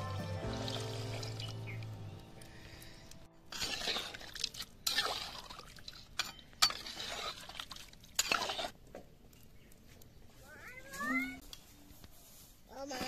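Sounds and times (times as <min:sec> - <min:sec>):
spatula scraping curry in pot: 0:03.5 - 0:05.6, 0:06.2 - 0:08.8.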